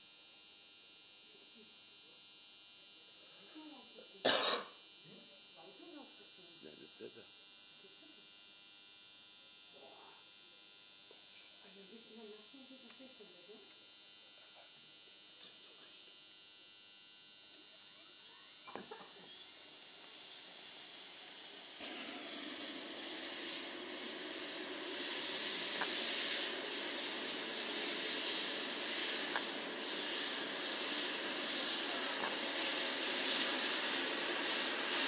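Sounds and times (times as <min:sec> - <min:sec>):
helicopter turbine engine starting: 0:18.2 - 0:35.0.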